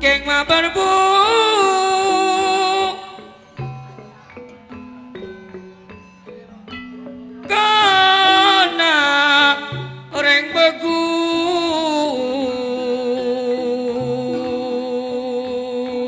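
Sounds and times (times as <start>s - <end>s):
man singing through a microphone: 0.0s - 3.5s, 7.5s - 16.0s
gamelan accompaniment: 0.0s - 16.0s.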